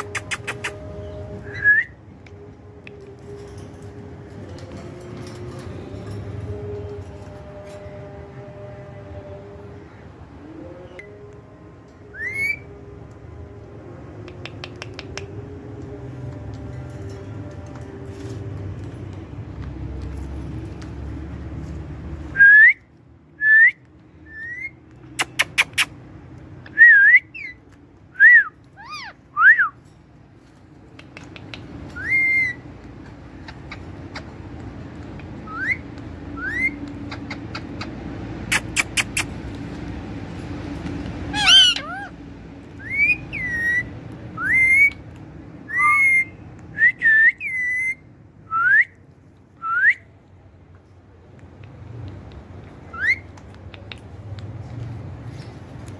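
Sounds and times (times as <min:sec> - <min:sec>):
parakeets whistling: 0:12.2 - 0:12.7, 0:32.0 - 0:32.7, 0:35.4 - 0:39.3, 0:41.3 - 0:45.0, 0:45.7 - 0:46.4, 0:47.1 - 0:48.1, 0:52.9 - 0:53.3
parakeet squawk: 0:41.3 - 0:42.2.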